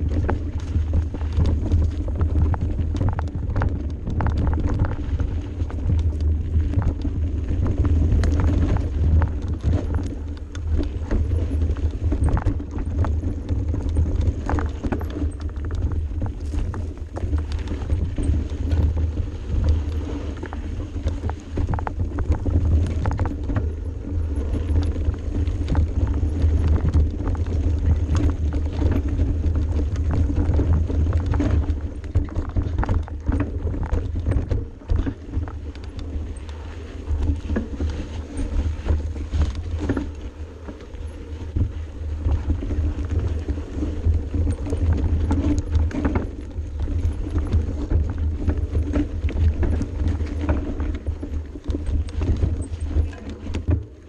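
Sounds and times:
bike rattling clicks and knocks: 0.0s - 54.0s
bike ride rumble: 0.0s - 54.0s.

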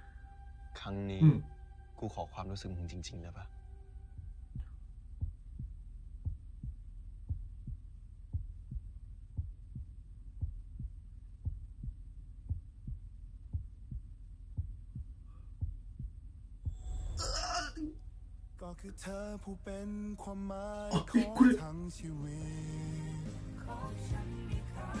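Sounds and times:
low steady hum: 0.0s - 24.9s
heartbeat double thump: 4.2s - 17.0s.

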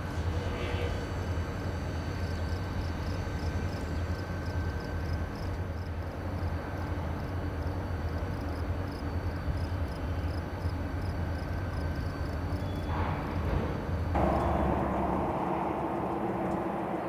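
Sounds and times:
diesel locomotive low drone: 0.0s - 17.0s.

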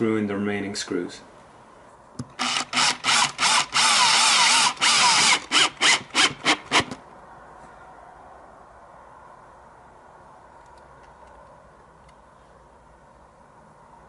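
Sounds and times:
cordless drill driving screws: 2.4s - 7.0s.

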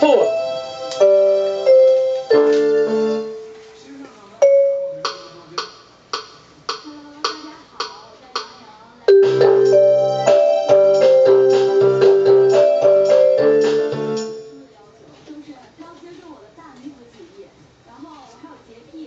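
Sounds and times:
keyboard chords with bass line: 0.0s - 3.5s, 9.1s - 14.6s
electronic keyboard notes: 0.0s - 3.7s, 4.4s - 5.4s, 9.1s - 14.7s.

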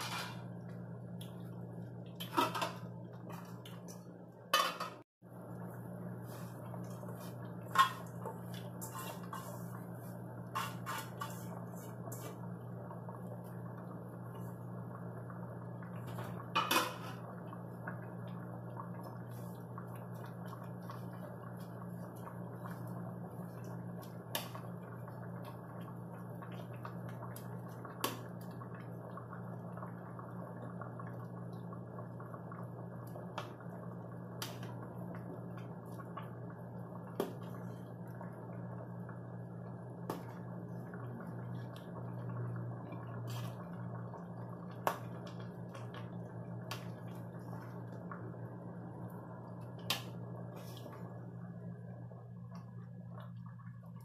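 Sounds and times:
steady low hum: 0.0s - 54.0s
metal ladle scraping a pot: 8.8s - 9.8s, 10.5s - 12.3s.

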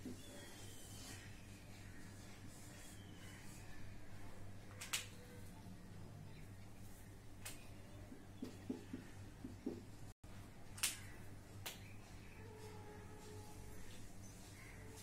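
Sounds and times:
marker squeak: 0.0s - 3.8s
marker scratching on whiteboard: 0.0s - 4.4s
low electrical hum: 0.0s - 15.0s.

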